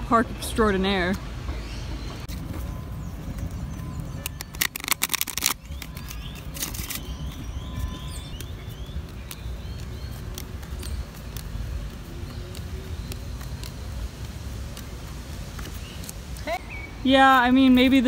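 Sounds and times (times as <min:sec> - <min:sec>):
playing cards riffle-shuffled: 0:04.2 - 0:16.6.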